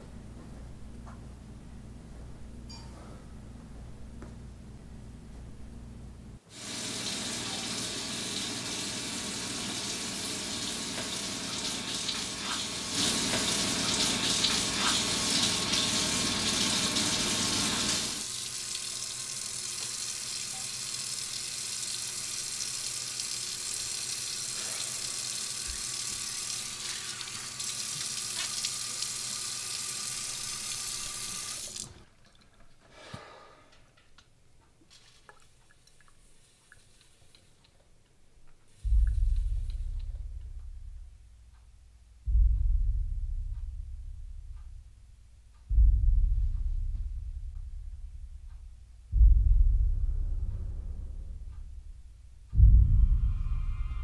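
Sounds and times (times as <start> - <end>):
faucet water running: 6.5 - 32.4.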